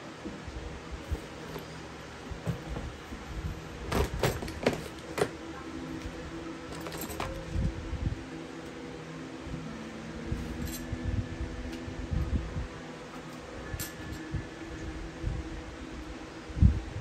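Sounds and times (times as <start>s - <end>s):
steady low hum: 0.0s - 17.0s
metallic clinks of fan parts: 6.7s - 7.6s, 10.4s - 11.0s, 13.2s - 14.4s.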